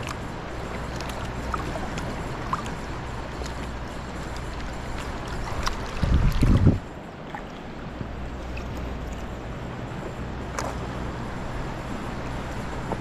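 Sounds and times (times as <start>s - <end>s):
low wind rumble: 0.0s - 13.0s
water lapping against kayak hull: 0.0s - 13.0s.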